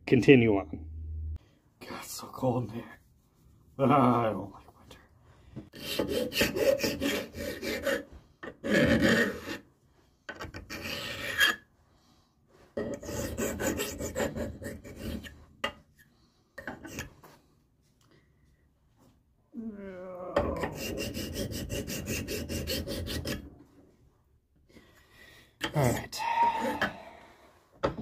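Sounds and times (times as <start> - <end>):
hand file rasping on metal: 5.7 - 9.6, 10.4 - 11.7, 12.8 - 15.4, 20.5 - 23.6.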